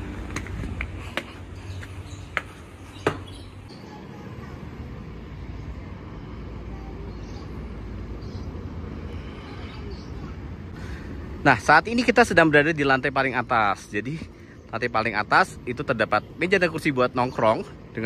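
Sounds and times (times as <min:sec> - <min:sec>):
footsteps on wooden stair treads: 0:00.2 - 0:03.4.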